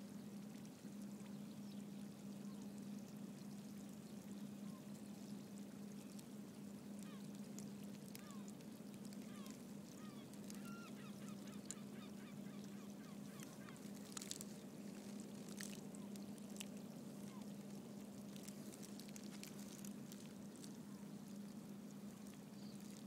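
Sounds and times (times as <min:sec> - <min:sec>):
waterbird calls: 0:06.9 - 0:07.4, 0:08.1 - 0:08.5, 0:09.1 - 0:21.4.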